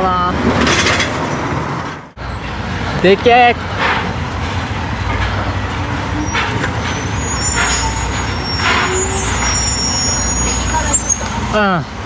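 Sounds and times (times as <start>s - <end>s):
diesel truck engine rumbling: 0.0s - 12.0s.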